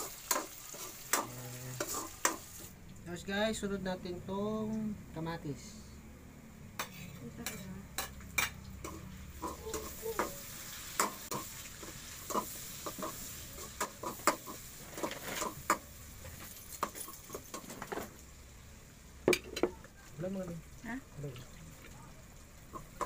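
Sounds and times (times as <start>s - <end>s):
metal utensil scraping a pan: 0.0s - 2.5s, 6.8s - 15.8s
tomatoes sizzling in a pan: 0.0s - 3.6s, 6.8s - 23.0s.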